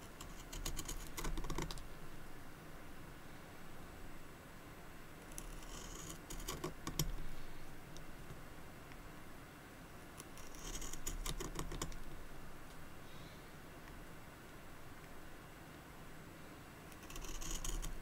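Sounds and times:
knife scraping pencil wood: 5.3 - 6.8, 10.2 - 11.8, 16.9 - 18.0.

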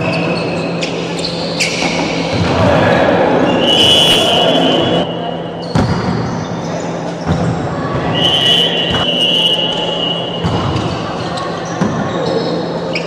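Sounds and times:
spectator chatter: 0.0 - 13.0
referee's whistle: 3.5 - 6.0, 8.1 - 10.5.

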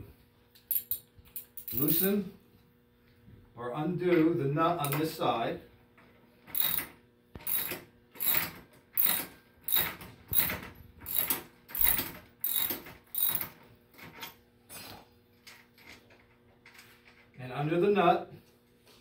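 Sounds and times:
wrench rasping on axle nut: 6.6 - 6.8, 7.5 - 10.5, 11.1 - 13.4.

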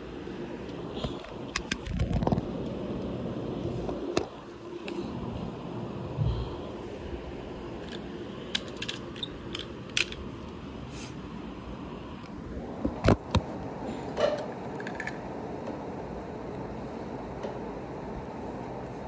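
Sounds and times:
steady low hum: 0.0 - 19.0
toy vehicles clicking and knocking: 7.8 - 10.5, 14.7 - 15.2.

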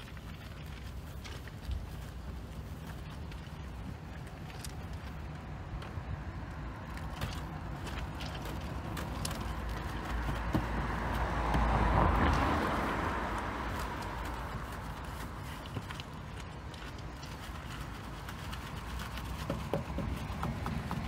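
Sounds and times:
rushing noise with low rumble: 0.0 - 21.0
brush scrubbing car panels: 13.4 - 21.0.

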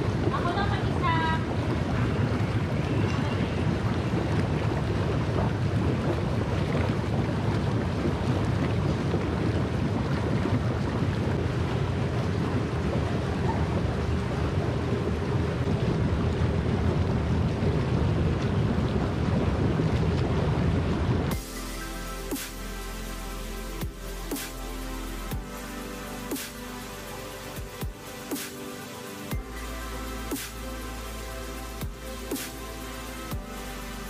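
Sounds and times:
jacuzzi jets bubbling water: 0.0 - 34.0.

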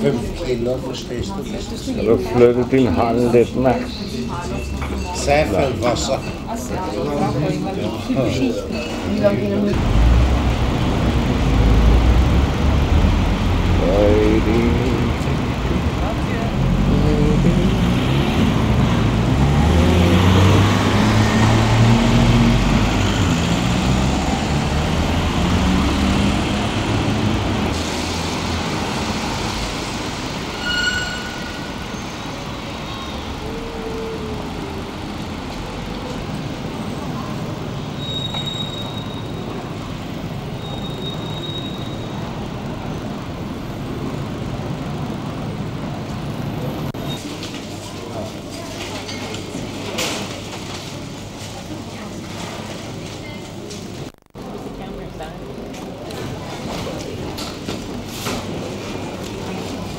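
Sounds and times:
street hum: 0.0 - 59.9
vehicle engine running loudly: 9.7 - 30.3.

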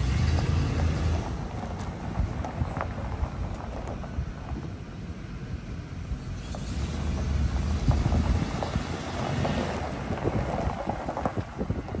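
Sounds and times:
wind buffeting microphone: 6.9 - 12.0.

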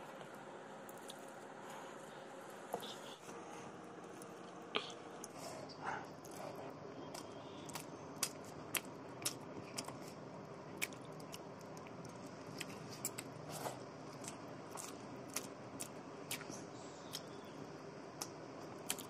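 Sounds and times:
chewing and lip smacks: 6.2 - 13.3, 14.1 - 17.4.

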